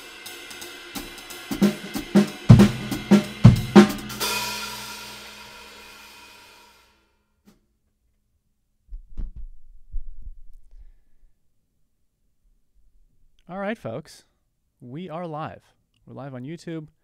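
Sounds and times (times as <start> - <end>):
kick drum and crash cymbal hit: 0.8 - 6.4
soft low thumps: 8.9 - 10.8.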